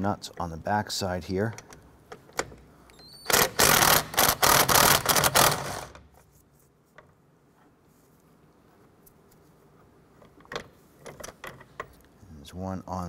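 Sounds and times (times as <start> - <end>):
power ratchet spinning: 3.1 - 6.0.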